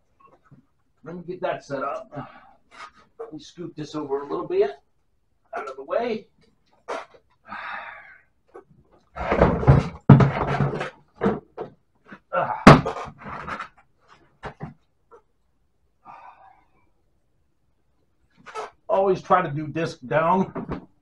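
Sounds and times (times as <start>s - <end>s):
plastic bin clattering on concrete: 9.2s - 11.8s.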